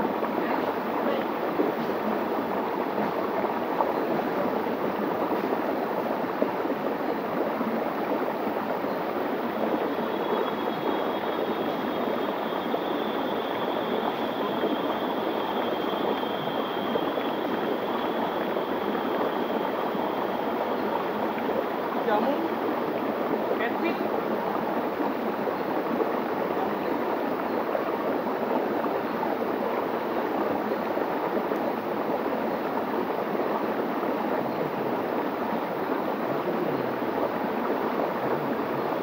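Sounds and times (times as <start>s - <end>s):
faint high whine: 8.7s - 24.1s
river rushing over rocks: 26.0s - 39.0s.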